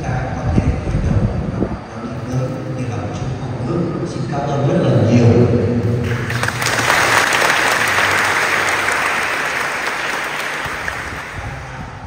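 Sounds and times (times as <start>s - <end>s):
audience clapping: 6.0s - 12.0s.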